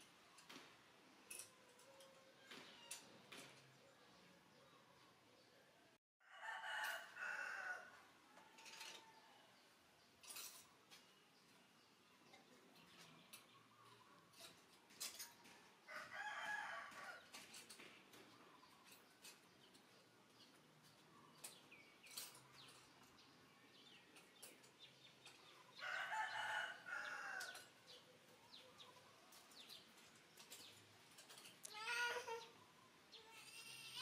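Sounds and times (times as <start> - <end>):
rooster crowing: 6.2 - 9.5, 15.9 - 17.2, 25.8 - 27.6.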